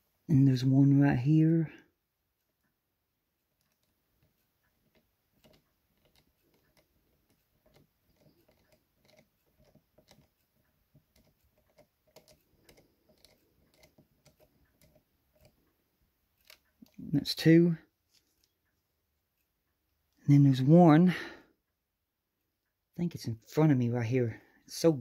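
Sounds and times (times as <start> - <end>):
screwdriver clicks and ticks: 4.9 - 15.6.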